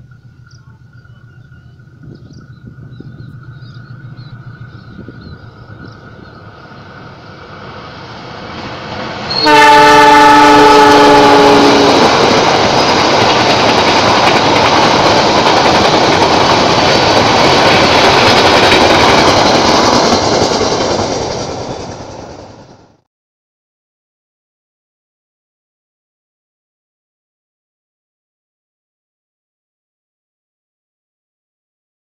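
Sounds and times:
train coaches rushing past: 0.0s - 23.0s
locomotive horn blast: 9.3s - 12.2s.

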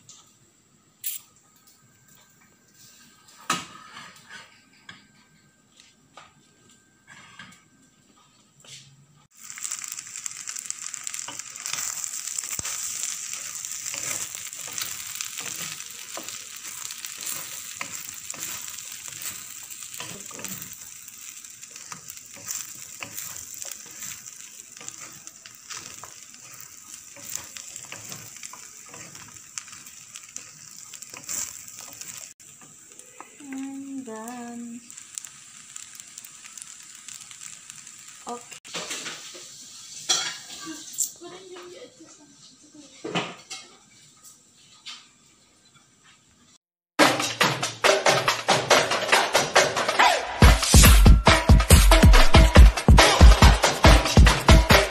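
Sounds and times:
rice sizzling in a wok: 0.0s - 54.9s
wooden spatula scraping wok: 2.8s - 5.1s, 9.4s - 41.3s.

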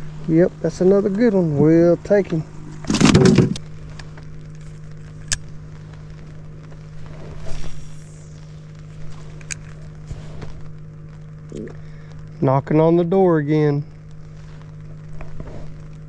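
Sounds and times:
small motor humming: 0.0s - 12.3s.

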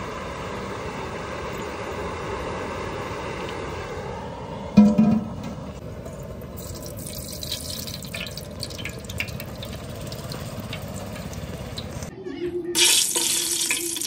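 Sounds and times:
crackles and pops of oil: 6.6s - 12.1s
spices frying in hot oil: 6.6s - 12.1s, 12.8s - 14.0s.

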